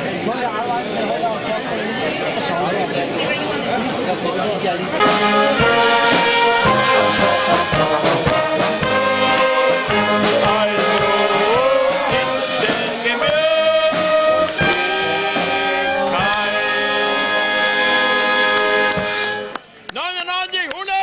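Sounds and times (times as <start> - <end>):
brass band playing: 5.0 - 19.6.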